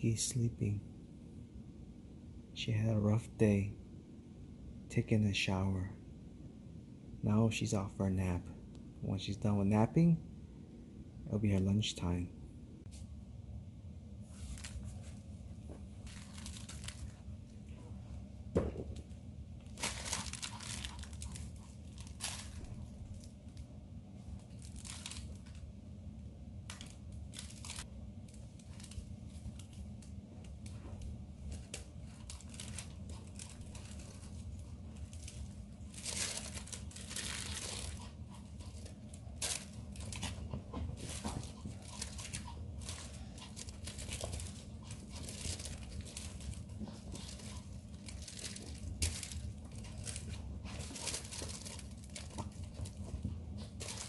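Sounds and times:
steady low hum: 0.0s - 54.0s
puppy rustling plush toy: 14.1s - 25.7s, 26.6s - 54.0s.

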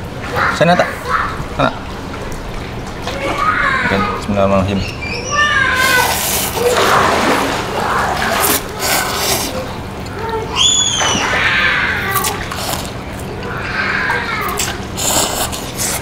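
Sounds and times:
pool water sloshing: 0.0s - 16.0s
noodles slurping: 5.8s - 16.0s.

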